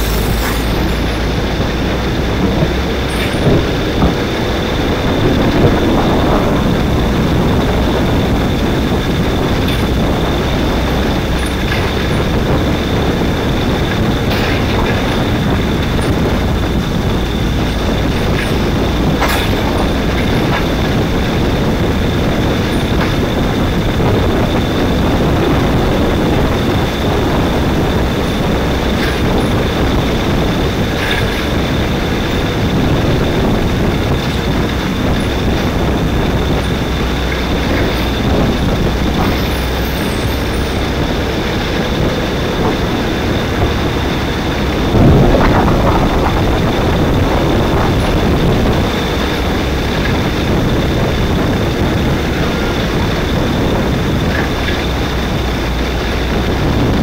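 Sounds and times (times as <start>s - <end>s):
tyre spray: 0.0s - 1.2s
kart engine at speed: 0.0s - 57.0s
thin high whine: 0.0s - 57.0s
wind on microphone: 0.0s - 57.0s.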